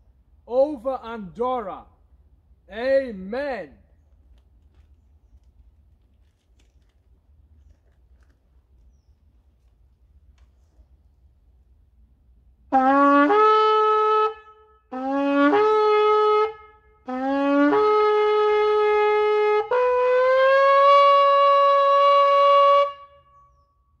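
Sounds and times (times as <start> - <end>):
shofar blasts: 12.7 - 23.3.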